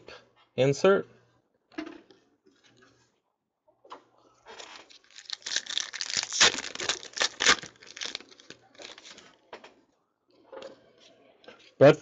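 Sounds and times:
foil wrapper tearing and crinkling: 4.6 - 9.2.

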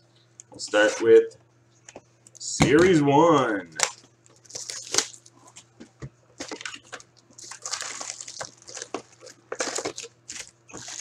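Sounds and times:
faint steady hum: 0.0 - 11.0
packaging crinkling and tearing: 3.8 - 5.4, 6.4 - 11.0.

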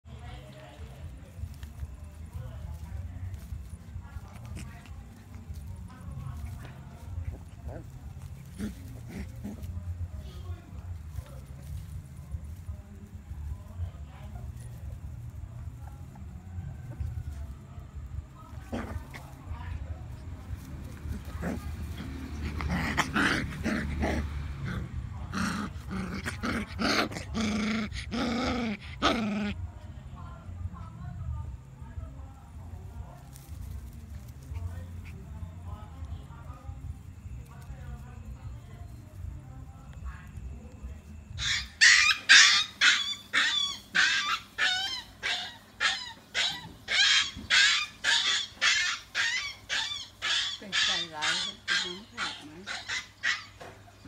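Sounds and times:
puppies growling and whining: 20.9 - 29.6, 41.3 - 54.0.

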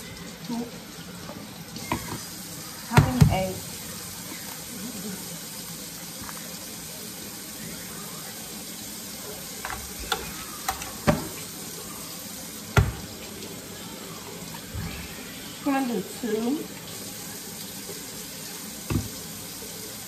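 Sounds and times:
eggs tapped on plastic container: 9.6 - 11.4, 12.8 - 13.2, 18.9 - 19.2.

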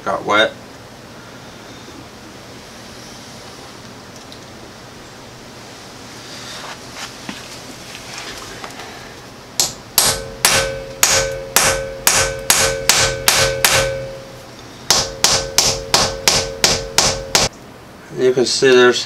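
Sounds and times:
hammer striking metal: 9.6 - 17.5.

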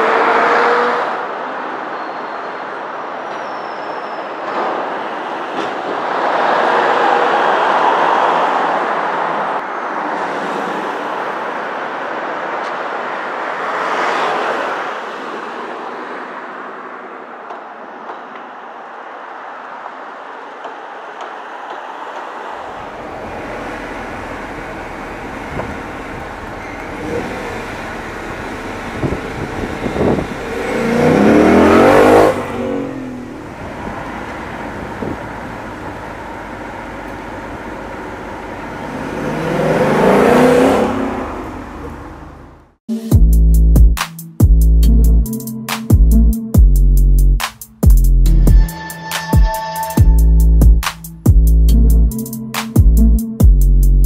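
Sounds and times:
car engine revving: 0.0 - 1.2, 22.6 - 42.7
car driving past: 17.9 - 42.6.

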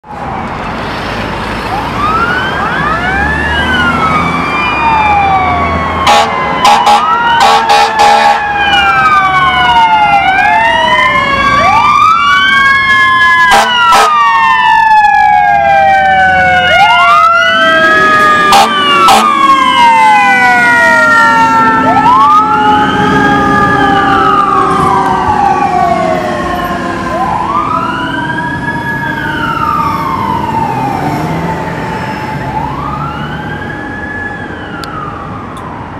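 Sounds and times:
fire truck siren wailing: 0.0 - 35.9
long falling siren tone: 1.6 - 35.9
air horn blasts: 6.1 - 8.4, 13.5 - 14.2, 18.5 - 19.4.

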